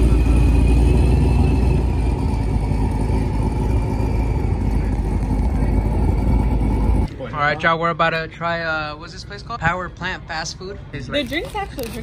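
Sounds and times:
car exhaust rumbling: 0.0 - 7.1.

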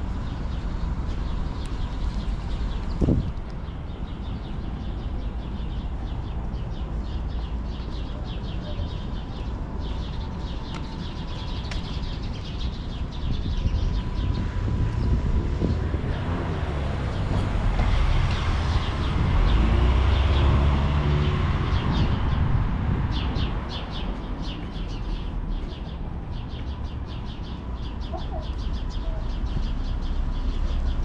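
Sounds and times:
low traffic rumble: 0.0 - 31.0
small birds chirping: 0.1 - 16.1, 23.0 - 31.0.

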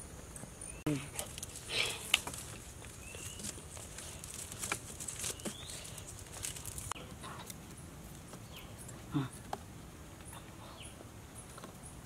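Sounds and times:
steady high-pitched hiss: 0.0 - 12.0
cord rustling around sticks: 1.0 - 9.6.

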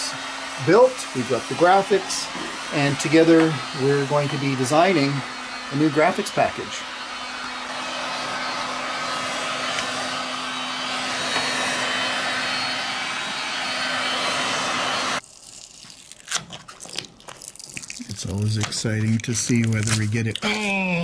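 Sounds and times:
heat gun blowing: 0.0 - 15.2.

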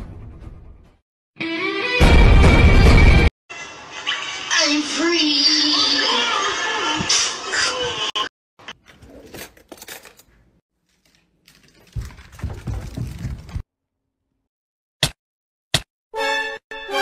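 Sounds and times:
metal pans clicking and scraping: 8.6 - 12.0.

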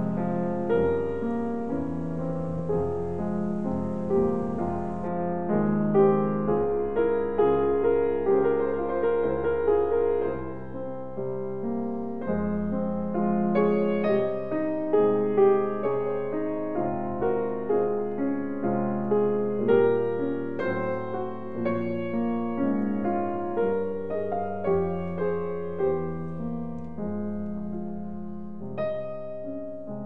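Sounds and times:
slow gentle piano music: 0.0 - 30.0.

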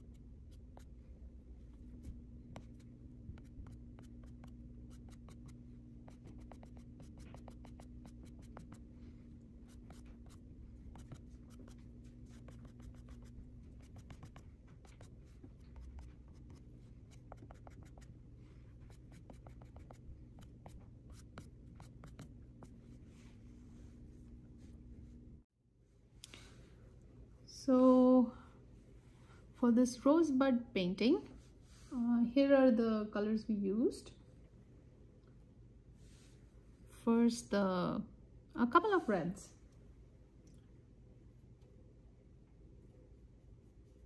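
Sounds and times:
steady low hum: 0.0 - 32.3, 39.4 - 44.0
eraser scratching on paper: 2.0 - 8.9, 9.6 - 18.2, 18.8 - 22.8.

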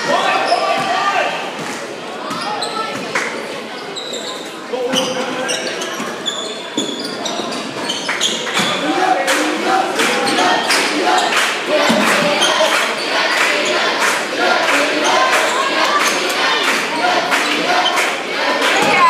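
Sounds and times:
crowd shouting: 0.0 - 1.6, 8.5 - 19.0
sneakers squeaking: 0.2 - 8.9, 12.2 - 14.0.

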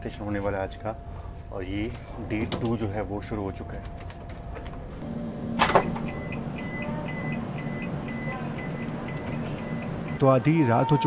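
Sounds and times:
steady low hum: 0.0 - 10.8
door release burst: 5.4 - 6.6
rapid warning beeps: 6.0 - 10.5.

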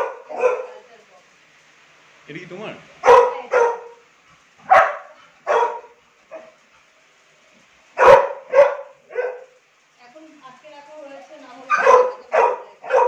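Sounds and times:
dog barking: 0.0 - 0.9, 3.0 - 6.6, 8.0 - 9.6, 11.7 - 13.0.

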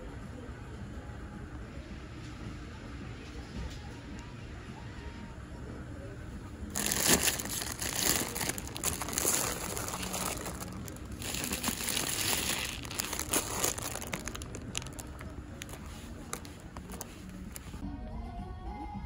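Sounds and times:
plastic wrapping crinkling: 6.7 - 17.8.

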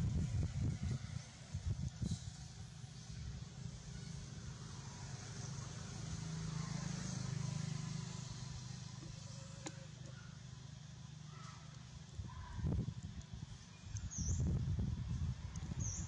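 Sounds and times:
passing vehicle engine hum: 0.0 - 11.4.

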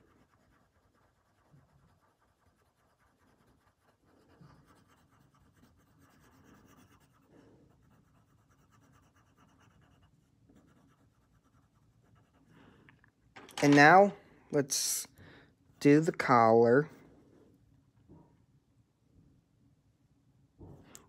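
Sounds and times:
pencil scratching on paper: 0.0 - 12.7.

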